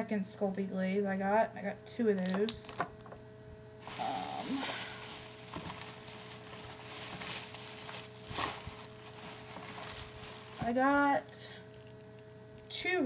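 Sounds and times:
plastic packaging crinkling: 0:03.8 - 0:12.7.

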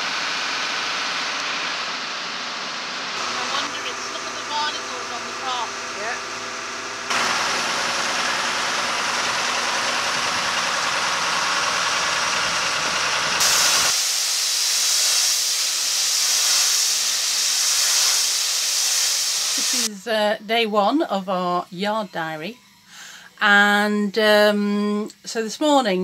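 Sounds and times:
engine running: 0:00.0 - 0:14.2
pressure washer jet hissing: 0:00.0 - 0:19.9.

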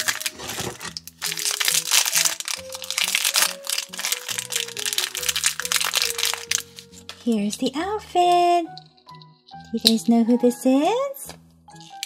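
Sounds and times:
plastic wrapper crinkling: 0:00.0 - 0:07.6, 0:11.7 - 0:12.0
background music with held notes: 0:00.0 - 0:12.0.

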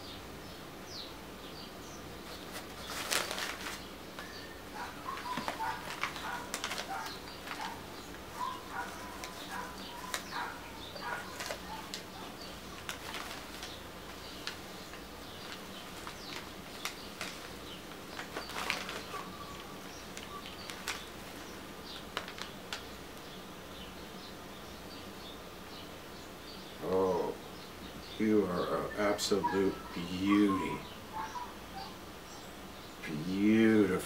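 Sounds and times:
cloth bag rustling and crinkling: 0:02.2 - 0:22.9.

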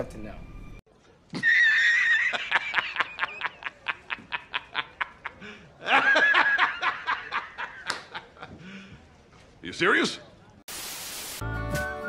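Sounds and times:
man laughing hysterically: 0:01.4 - 0:08.6.

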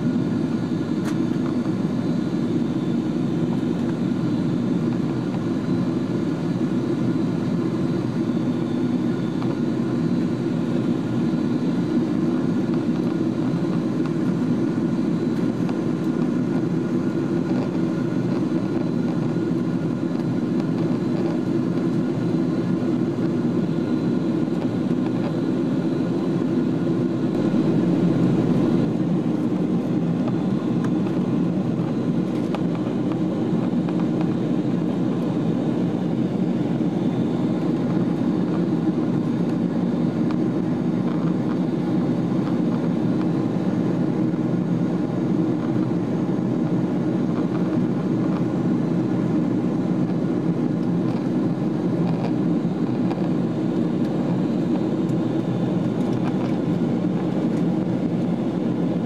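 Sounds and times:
airplane cabin engine rumble: 0:00.0 - 0:59.0
faint steady whining tones: 0:00.0 - 0:59.0.

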